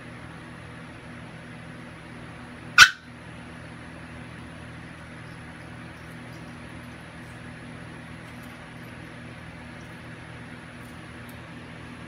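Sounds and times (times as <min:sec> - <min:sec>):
steady mechanical hum: 0:00.0 - 0:12.0
pet yelping: 0:02.8 - 0:03.0.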